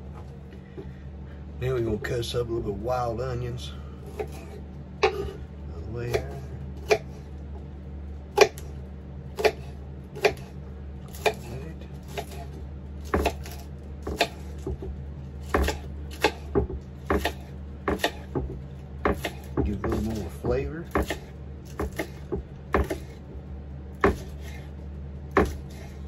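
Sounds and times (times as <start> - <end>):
knife chopping on cutting board: 4.1 - 5.4, 6.1 - 7.2, 8.4 - 8.6, 9.4 - 10.5, 11.1 - 12.5, 13.1 - 23.2, 24.0 - 24.7, 25.3 - 26.0.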